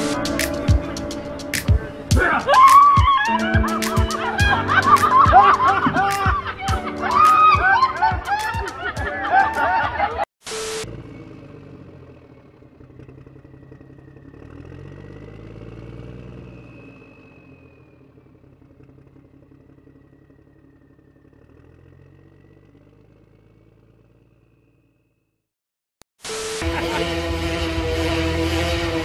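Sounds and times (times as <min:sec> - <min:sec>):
diesel truck engine running: 0:00.0 - 0:02.5, 0:07.7 - 0:25.2
thin high whine: 0:26.2 - 0:29.0.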